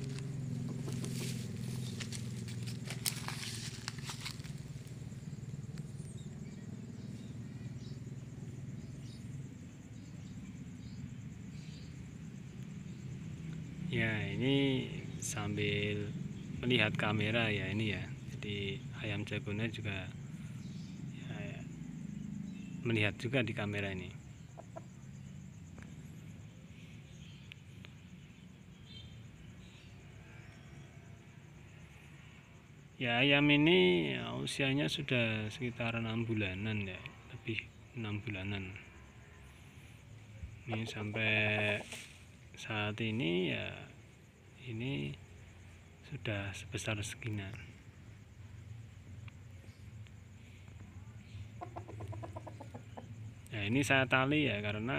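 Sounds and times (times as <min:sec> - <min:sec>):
low steady rumble: 0:00.0 - 0:15.3
high insect drone: 0:00.0 - 0:54.9
small birds chirping: 0:00.0 - 0:54.9
faint ticks: 0:27.2 - 0:28.0, 0:49.1 - 0:53.6.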